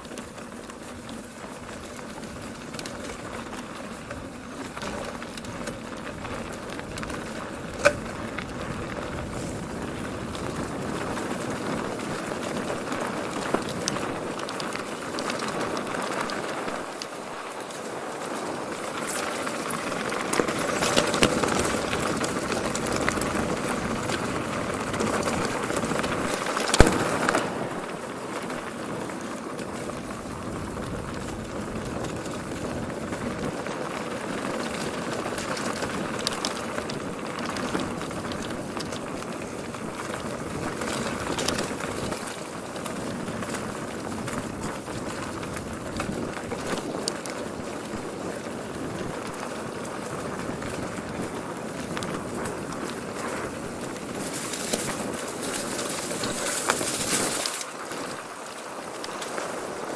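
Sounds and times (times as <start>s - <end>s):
bike clicks and rattles: 0.0s - 59.9s
bike tyres on dirt: 0.0s - 59.9s.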